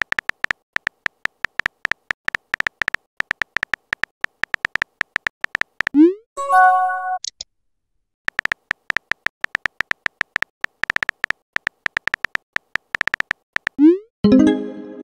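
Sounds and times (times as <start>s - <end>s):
message sent chime: 6.4s - 7.2s, 14.3s - 15.0s
phone keyboard tap clicks: 8.3s - 13.8s.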